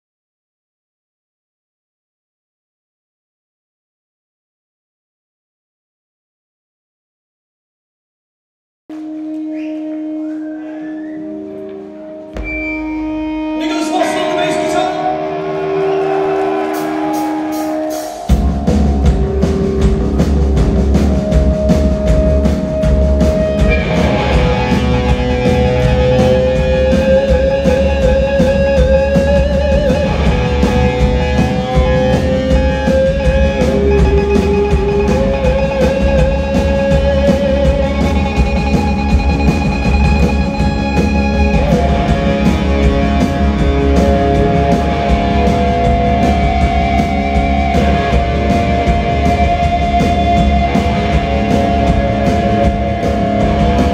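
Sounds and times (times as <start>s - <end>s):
electric guitars: 8.9s - 53.9s
keyboard: 8.9s - 53.9s
drum kit drumming: 12.3s - 15.0s, 15.9s - 53.9s.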